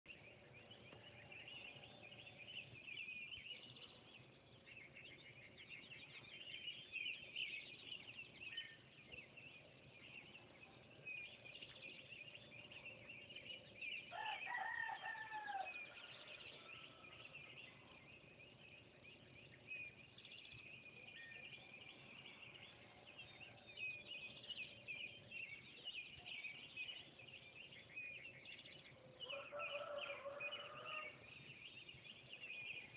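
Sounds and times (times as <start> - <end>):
songbirds singing: 0.0 - 32.9
rooster crowing: 14.1 - 17.4, 29.2 - 31.2.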